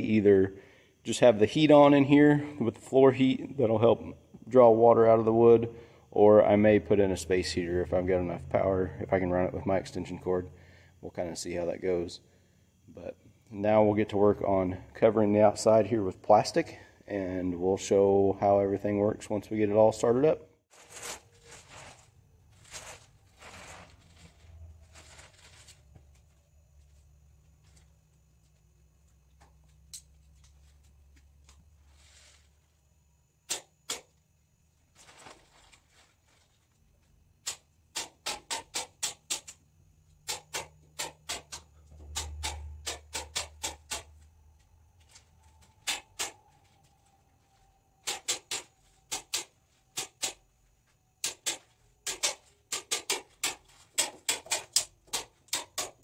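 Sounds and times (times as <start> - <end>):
plastic sheeting rustling: 20.7 - 25.9, 34.8 - 36.8.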